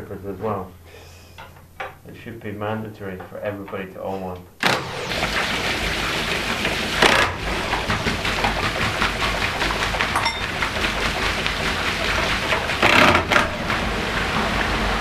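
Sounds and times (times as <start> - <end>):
water gushing and splashing: 4.6 - 15.0.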